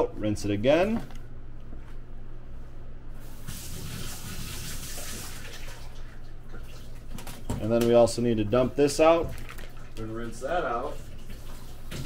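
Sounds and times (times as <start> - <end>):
water running from sink tap: 3.2 - 7.3, 9.0 - 12.0.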